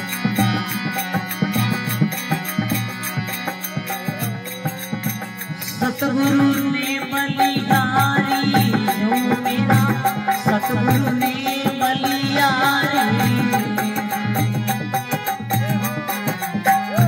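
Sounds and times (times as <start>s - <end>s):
harmonium playing: 0.0s - 17.0s
quick percussion beat: 0.0s - 17.0s
man singing: 3.5s - 17.0s.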